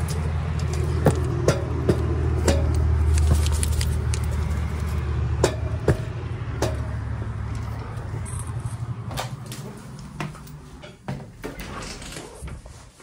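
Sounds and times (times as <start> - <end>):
low hum: 0.0 - 11.0
footsteps: 7.2 - 11.6.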